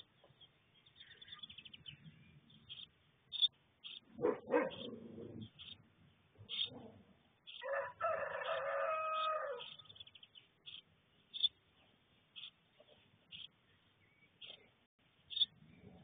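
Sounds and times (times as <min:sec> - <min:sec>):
rooster crowing: 0:07.6 - 0:09.8.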